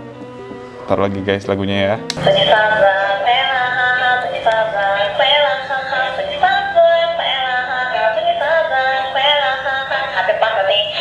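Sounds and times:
toy synthetic singing voice: 2.3 - 11.0.

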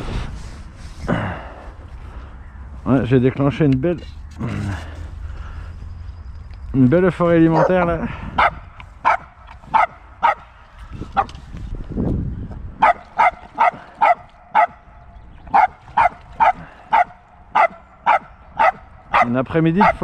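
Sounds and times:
dog barking in high yaps: 7.6 - 7.8, 8.4 - 10.4, 12.8 - 14.8, 15.5 - 20.0.

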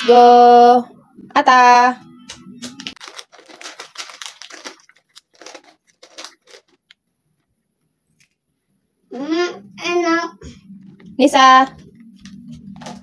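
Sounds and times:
plastic chip bag crinkling: 2.6 - 7.0.

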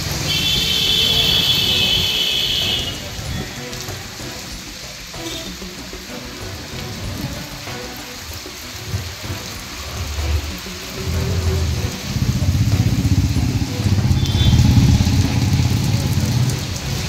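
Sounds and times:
heavy rain on wet street: 0.0 - 17.0
traffic passing: 0.0 - 17.0
low engine rumble: 9.0 - 17.0.

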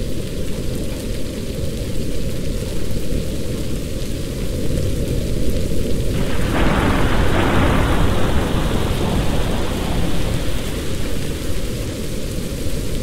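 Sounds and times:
steady rain: 0.0 - 13.0
thunder rolling: 5.7 - 13.0.

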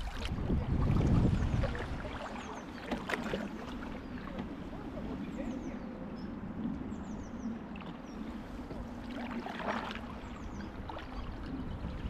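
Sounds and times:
steady low rumble: 0.0 - 2.2
water splash: 0.0 - 4.0, 9.1 - 10.2
paddle strokes through water: 0.0 - 12.0.

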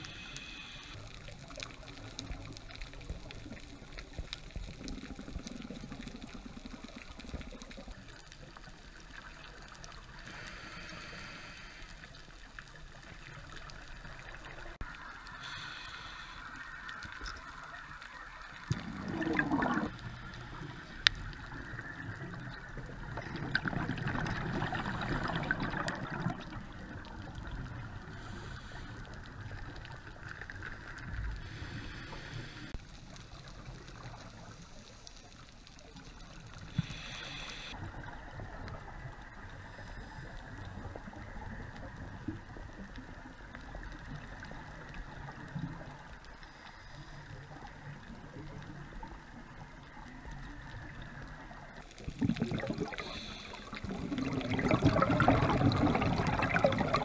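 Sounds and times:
muffled underwater rush: 0.0 - 57.0
diver exhaling bubbles: 18.7 - 20.8, 21.4 - 27.0, 52.0 - 57.0.

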